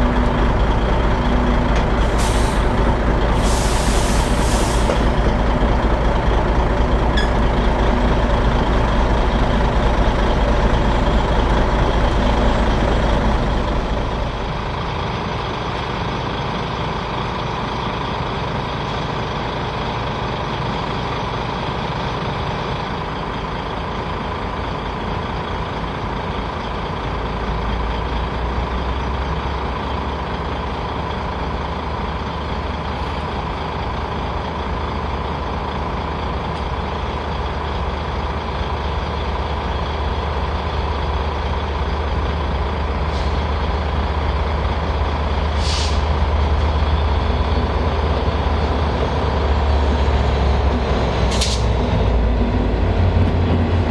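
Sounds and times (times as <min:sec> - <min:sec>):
diesel locomotive engine running: 0:00.0 - 0:53.9
short hiss: 0:45.6 - 0:46.1.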